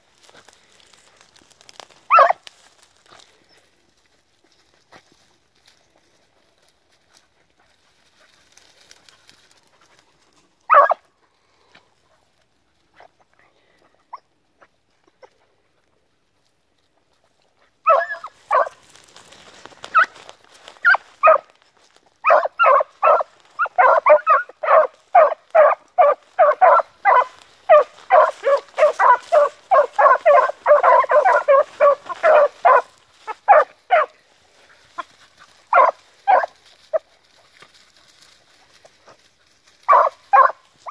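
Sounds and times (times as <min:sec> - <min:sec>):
hound yelp: 0:02.0 - 0:02.5, 0:10.7 - 0:11.1, 0:14.1 - 0:14.4, 0:17.8 - 0:18.8, 0:19.9 - 0:20.2, 0:20.8 - 0:21.5, 0:22.2 - 0:34.2, 0:35.0 - 0:37.1, 0:39.8 - 0:40.9
hounds barking quickly: 0:02.1 - 0:02.5, 0:10.7 - 0:11.1, 0:17.8 - 0:18.8, 0:19.9 - 0:20.2, 0:20.8 - 0:21.5, 0:22.2 - 0:34.2, 0:35.0 - 0:37.0, 0:39.9 - 0:40.9.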